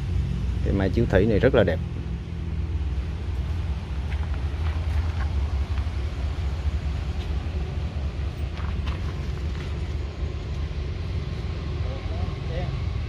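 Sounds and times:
low outdoor rumble: 0:00.0 - 0:13.0.

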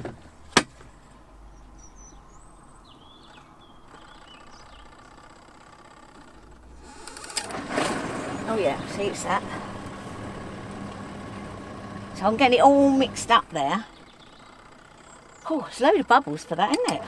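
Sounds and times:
washing machine motor humming: 0:05.8 - 0:17.0.

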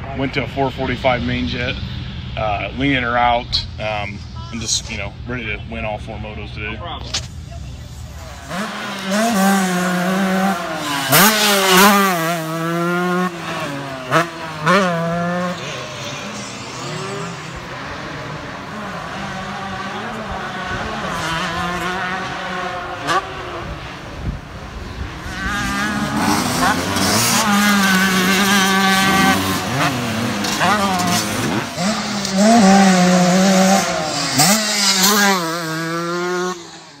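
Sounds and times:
dirt bike engine revving: 0:08.0 - 0:37.0.

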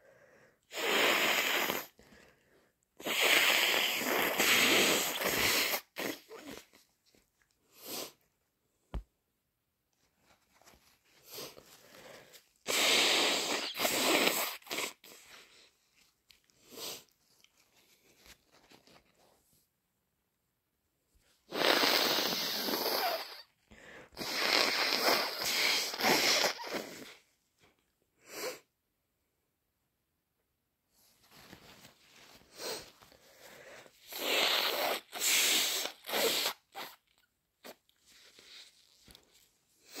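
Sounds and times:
person sniffing: 0:00.0 - 0:02.4, 0:03.0 - 0:06.8, 0:07.7 - 0:08.2, 0:11.2 - 0:15.7, 0:16.6 - 0:17.2, 0:21.4 - 0:27.2, 0:28.2 - 0:28.7, 0:32.3 - 0:37.0, 0:39.8 - 0:40.0
short snorts: 0:00.7 - 0:02.0, 0:03.0 - 0:06.8, 0:12.7 - 0:15.4, 0:21.5 - 0:23.5, 0:24.2 - 0:27.2, 0:34.0 - 0:37.0
person blowing nose: 0:00.7 - 0:02.2, 0:03.0 - 0:06.8, 0:07.7 - 0:08.2, 0:11.2 - 0:15.7, 0:16.6 - 0:17.1, 0:21.4 - 0:27.2, 0:28.2 - 0:28.7, 0:31.4 - 0:39.2, 0:39.8 - 0:40.0
faint tissue rustling: 0:06.0 - 0:12.6, 0:15.0 - 0:20.0, 0:30.9 - 0:34.1, 0:37.6 - 0:40.0.

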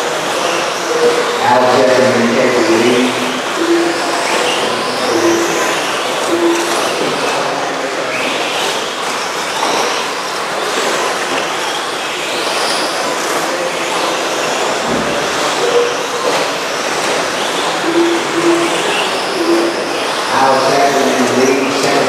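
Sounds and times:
rc truck motors whining: 0:08.1 - 0:21.4.

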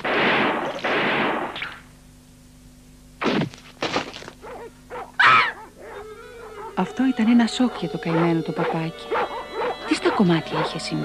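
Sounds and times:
cartoon gunshot blasts: 0:00.0 - 0:01.8, 0:03.2 - 0:03.5.

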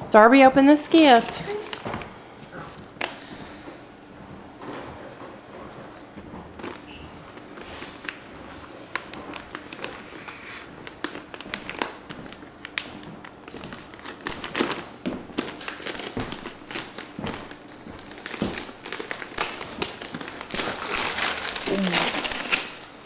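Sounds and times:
wrapping paper crinkling and tearing: 0:01.0 - 0:02.0, 0:05.9 - 0:23.0.

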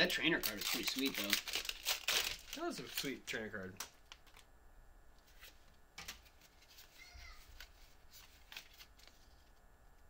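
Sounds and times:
cards flicking and slapping: 0:07.5 - 0:09.2.

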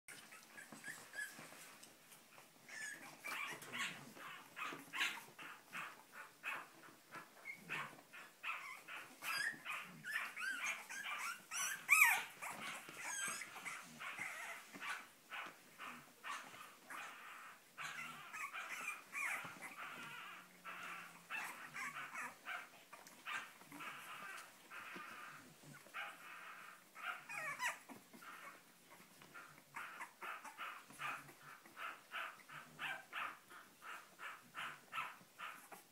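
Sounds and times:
puppies crying: 0:00.1 - 0:01.8, 0:02.4 - 0:35.9.

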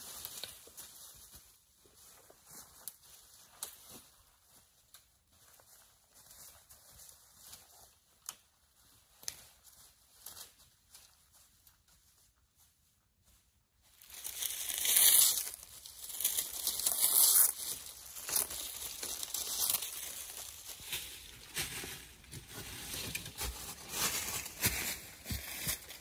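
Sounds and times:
footsteps crunching dry leaves: 0:13.8 - 0:26.0
dry leaves crackling: 0:13.9 - 0:26.0.

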